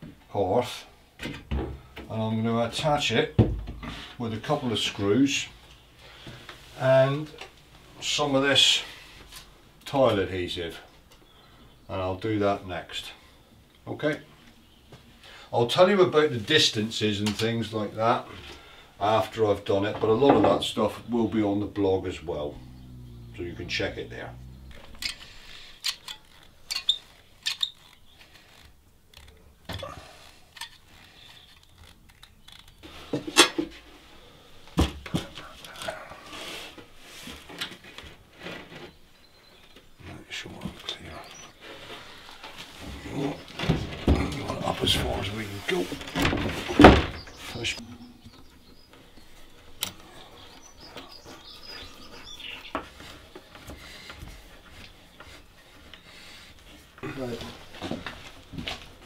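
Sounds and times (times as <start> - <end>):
screwdriver scraping and clicking: 25.8 - 29.4.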